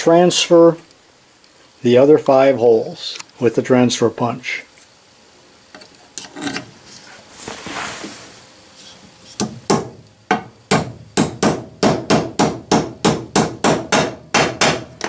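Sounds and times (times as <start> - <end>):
hammer tapping metal punch: 9.4 - 15.0.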